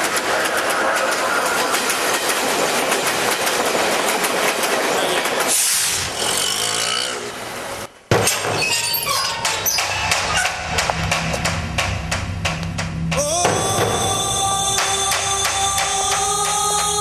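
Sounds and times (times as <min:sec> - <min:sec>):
train clattering on track: 0:00.0 - 0:17.0
loud bang: 0:10.0 - 0:16.6.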